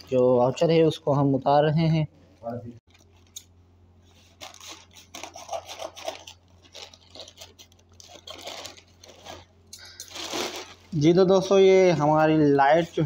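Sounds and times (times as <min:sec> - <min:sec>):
plastic crinkling: 0:02.8 - 0:12.9
scissors cutting plastic bag: 0:04.4 - 0:09.4.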